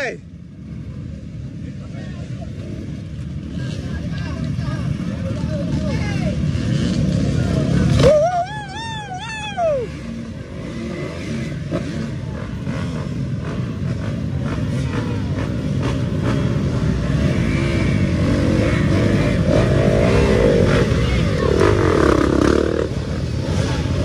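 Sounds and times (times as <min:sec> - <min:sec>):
dirt bike engine revving: 0:06.4 - 0:08.2, 0:09.8 - 0:24.0.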